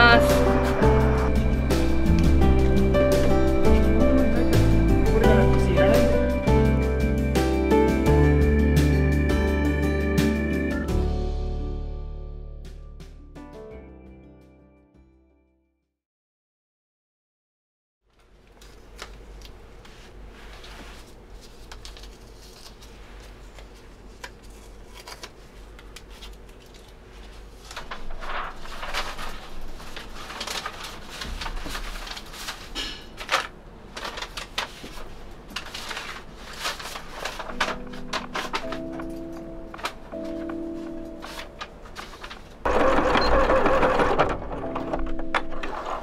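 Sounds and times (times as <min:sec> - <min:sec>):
music: 0:00.0 - 0:15.9, 0:37.4 - 0:42.0, 0:42.8 - 0:46.0
low steady hum: 0:18.3 - 0:43.3.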